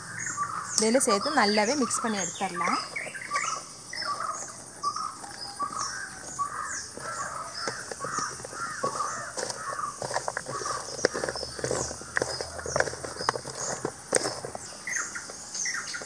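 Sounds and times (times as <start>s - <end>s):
crows cawing: 0.0s - 0.8s, 1.7s - 13.2s.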